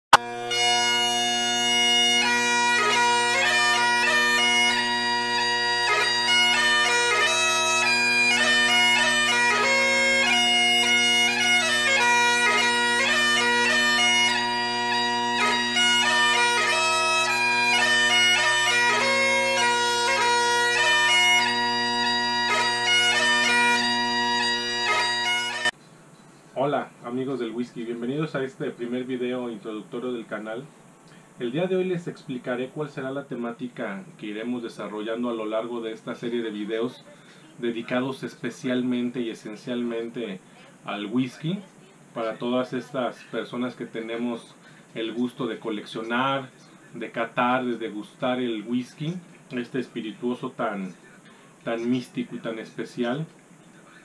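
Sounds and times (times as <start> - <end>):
bagpipe chanter melody: 0.1 - 25.8
bagpipe drone: 0.1 - 25.8.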